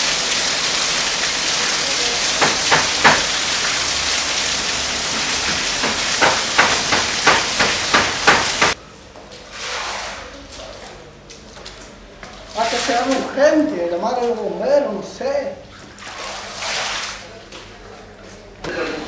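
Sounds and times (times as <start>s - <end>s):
heavy rain pouring: 0.0s - 8.8s
splashing knocks on wet floor: 2.3s - 3.7s, 5.1s - 8.8s.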